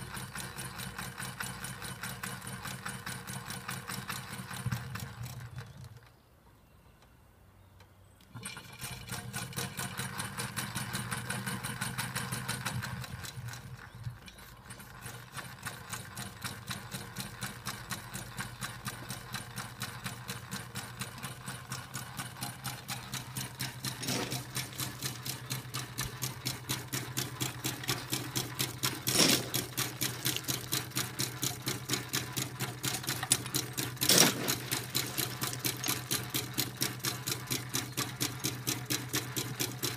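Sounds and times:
small steam engine rhythmic beat: 9.7s - 39.9s.

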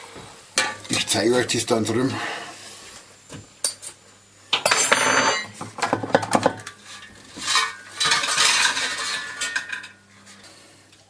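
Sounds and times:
metal tongs clinking and scraping: 6.9s - 10.0s.

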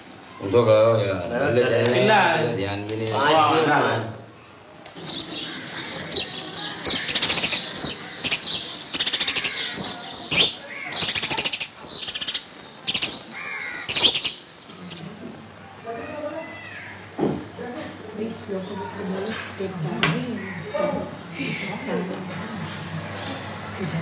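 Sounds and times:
birds chirping and trilling: 4.4s - 15.2s, 18.2s - 24.0s.

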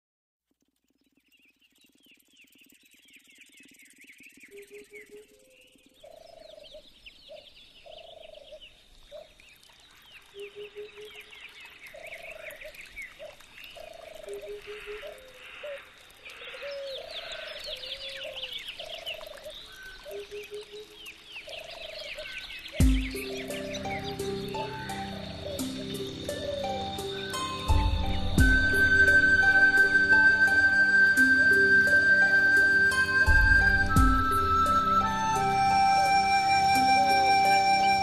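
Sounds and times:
frogs croaking: 1.6s - 33.8s
high-pitched chirping: 22.8s - 38.0s
music: 22.8s - 38.0s.

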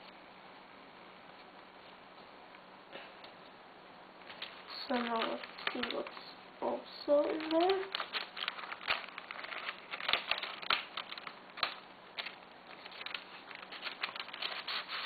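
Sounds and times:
paper rustling and crinkling: 4.2s - 6.4s, 7.1s - 15.0s.

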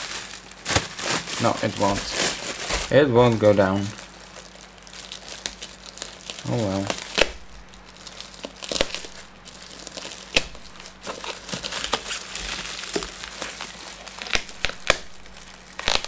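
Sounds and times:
bubble wrap crinkling: 0.0s - 16.0s
knife cutting bubble wrap: 0.0s - 16.0s.

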